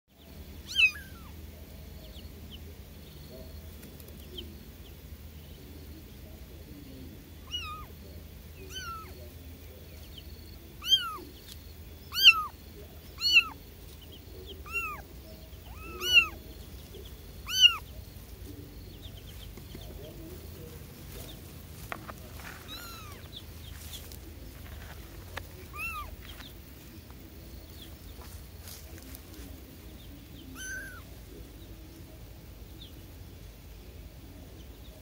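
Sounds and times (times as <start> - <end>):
kittens mewing: 0.6 - 1.4, 7.4 - 8.0, 8.6 - 9.2, 10.7 - 11.4, 12.1 - 13.6, 14.5 - 16.4, 17.4 - 17.9, 22.6 - 23.4, 25.6 - 26.2, 30.5 - 31.1.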